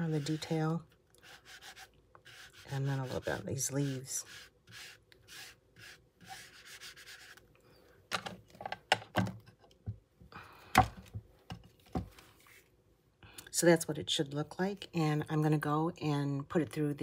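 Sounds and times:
ink pad scraping plastic: 0.0s - 7.4s.

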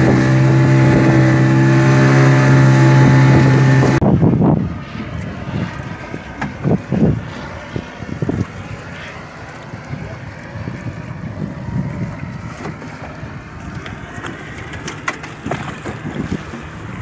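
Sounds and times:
wind rumbling on microphone: 0.0s - 17.0s
water sloshing: 11.8s - 17.0s
splashes and knocks of handline: 12.0s - 16.8s.

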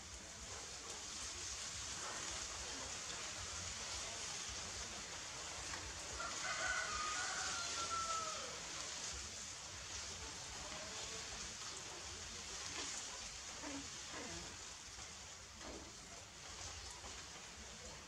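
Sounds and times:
steady background hiss: 0.0s - 18.0s
rooster crowing: 6.2s - 8.7s.

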